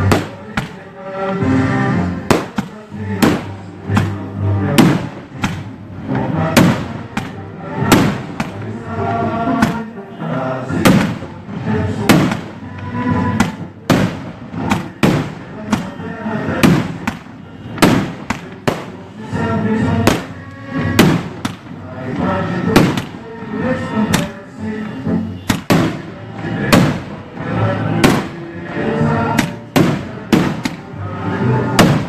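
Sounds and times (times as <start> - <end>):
fireworks bursting with sharp bangs: 0.0 - 5.8, 6.4 - 8.8, 10.8 - 23.3, 25.4 - 28.5, 29.3 - 31.0, 31.6 - 32.0.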